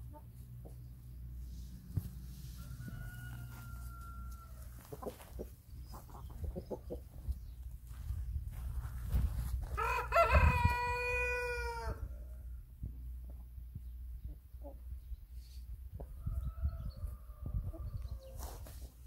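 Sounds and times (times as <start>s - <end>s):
rooster crowing: 2.6s - 4.8s, 9.8s - 12.2s
hens clucking: 2.6s - 7.8s.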